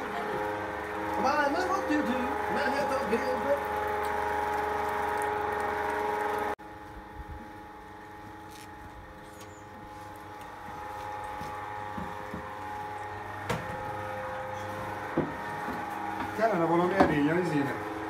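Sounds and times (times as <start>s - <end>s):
meat grinder motor humming: 0.0s - 6.8s, 9.0s - 18.0s.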